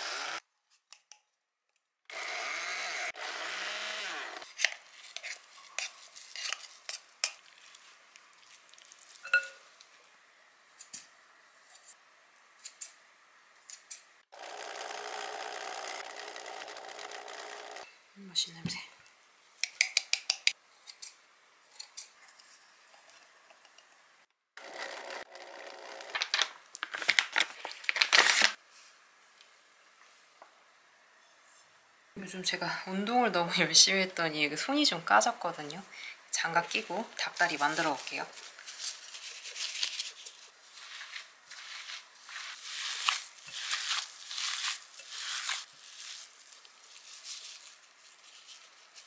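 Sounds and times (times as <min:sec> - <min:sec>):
hands kneading dough: 0:37.4 - 0:49.0
pouch rustling and crinkling: 0:38.3 - 0:49.0.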